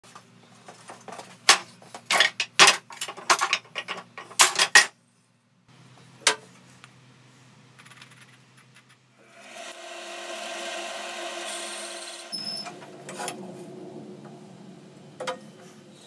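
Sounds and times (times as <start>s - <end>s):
wooden pieces clattering: 1.1s - 4.9s.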